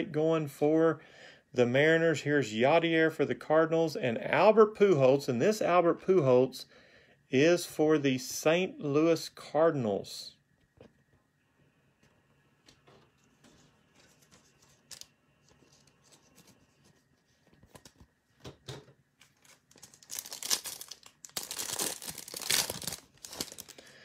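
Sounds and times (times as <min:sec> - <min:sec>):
foil wrapper crinkling and tearing: 0:14.6 - 0:15.1, 0:19.2 - 0:24.0.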